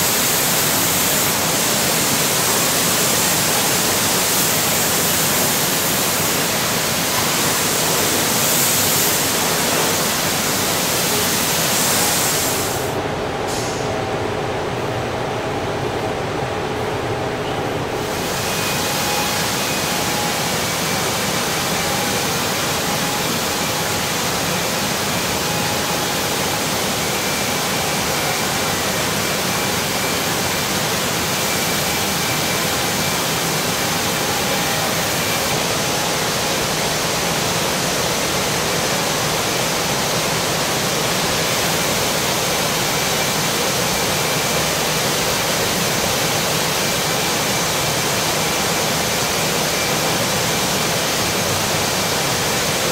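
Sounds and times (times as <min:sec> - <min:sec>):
paint spray hiss: 0:00.0 - 0:13.8.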